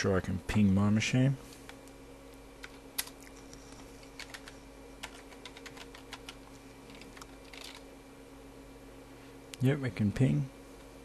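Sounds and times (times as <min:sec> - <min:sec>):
faint low hum: 0:00.0 - 0:11.0
keyboard keys clicking: 0:04.0 - 0:07.8.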